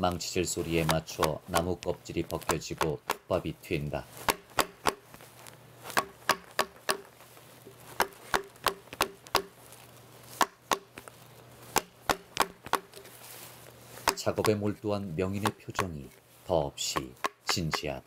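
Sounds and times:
wooden mallet striking chisel: 0:00.8 - 0:03.4, 0:04.2 - 0:05.2, 0:05.9 - 0:09.6, 0:10.4 - 0:11.1, 0:11.7 - 0:13.1, 0:14.0 - 0:14.8, 0:15.4 - 0:16.1, 0:16.9 - 0:17.9.

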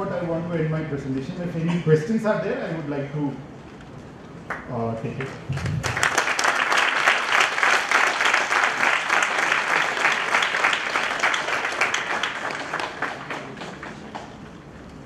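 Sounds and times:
audience applauding: 0:04.4 - 0:14.7.

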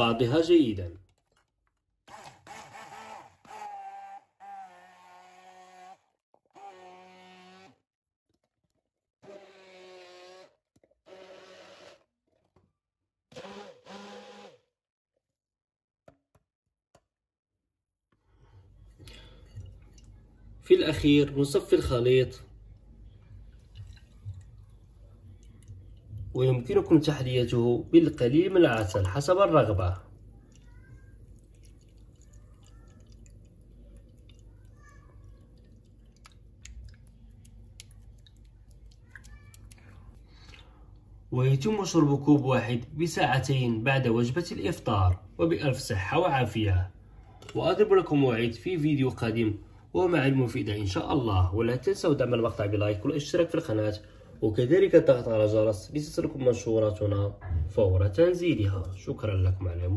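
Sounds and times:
stick blender motor: 0:02.1 - 0:07.8, 0:09.2 - 0:12.1, 0:13.3 - 0:14.6
low steady hum: 0:18.8 - 0:53.2, 0:54.0 - 0:59.9
juice trickling into a glass: 0:23.4 - 0:40.8
small ticks: 0:35.3 - 0:40.1.

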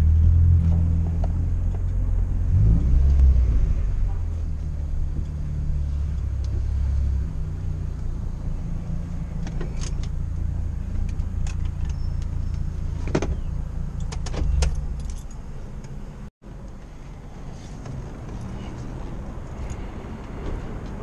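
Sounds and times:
car engine low rumble: 0:00.0 - 0:21.0.

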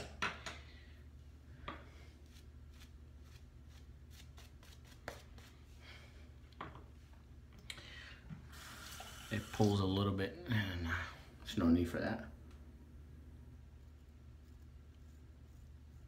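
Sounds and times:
shaving brush scratching: 0:02.2 - 0:05.5, 0:13.8 - 0:16.0.

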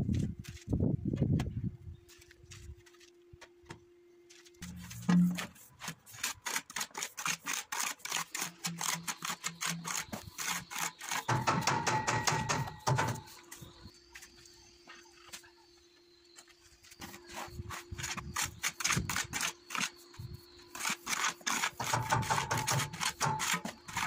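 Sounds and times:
trowel scraping bucket and tile: 0:04.6 - 0:13.8, 0:17.0 - 0:24.0.

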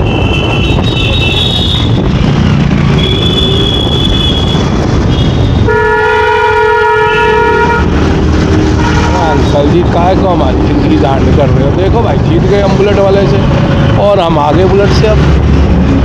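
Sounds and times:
city traffic: 0:00.0 - 0:16.0
high-pitched horn toots: 0:03.0 - 0:08.0
loud vehicle horn: 0:03.0 - 0:08.1, 0:08.7 - 0:09.4.

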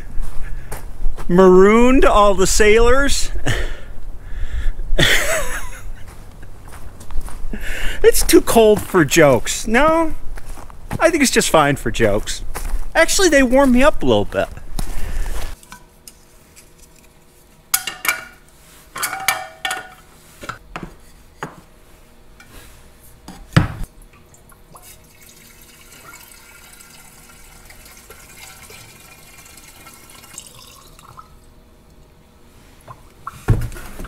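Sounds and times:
fuel pouring through funnel: 0:24.3 - 0:31.4.

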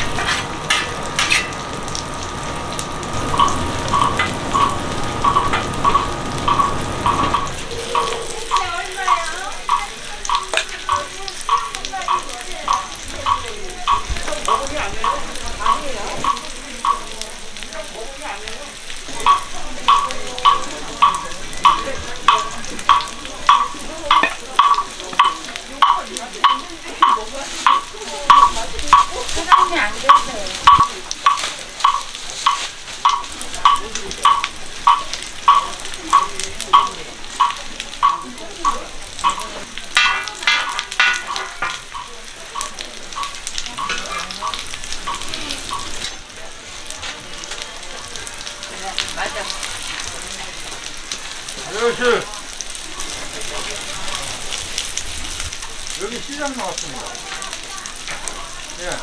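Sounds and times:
food sizzling in oil on a griddle: 0:00.0 - 0:59.0.

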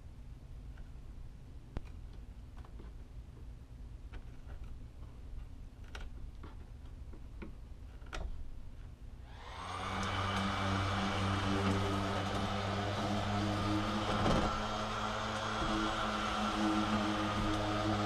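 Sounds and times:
electric motor humming: 0:09.3 - 0:18.0.

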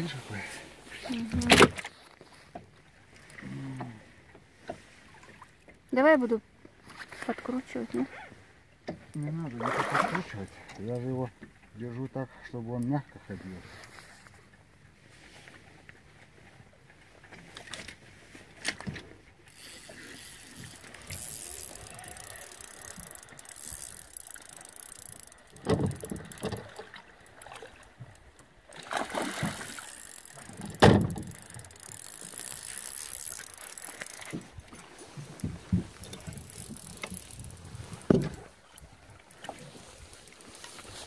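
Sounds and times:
fishing reel clicking and whirring: 0:19.5 - 0:39.5.

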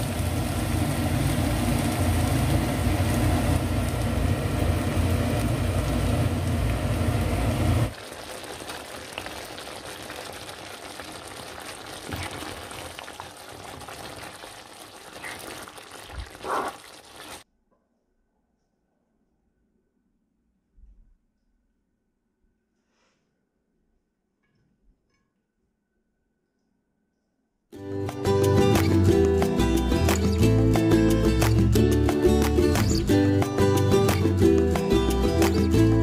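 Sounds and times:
curry bubbling: 0:00.0 - 0:17.4
liquid sizzling in hot pan: 0:00.0 - 0:17.4.

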